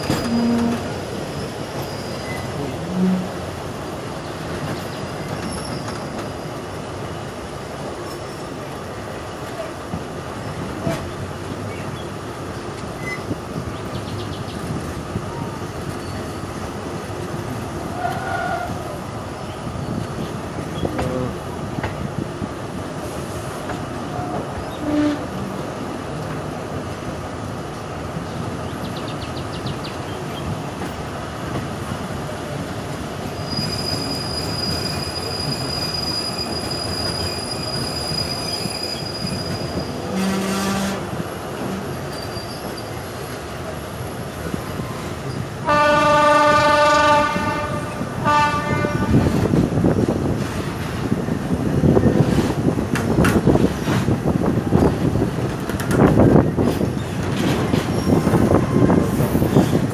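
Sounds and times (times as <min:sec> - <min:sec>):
train wheels squealing: 0:00.0 - 0:02.6, 0:04.7 - 0:06.8, 0:13.0 - 0:13.4, 0:15.9 - 0:16.5, 0:33.2 - 0:40.4, 0:42.0 - 0:43.2, 0:56.9 - 0:59.9
train rumbling on rails: 0:00.0 - 0:59.9
train horn blast: 0:00.2 - 0:00.9, 0:02.6 - 0:03.4, 0:24.1 - 0:25.5, 0:40.0 - 0:41.8, 0:45.6 - 0:49.5.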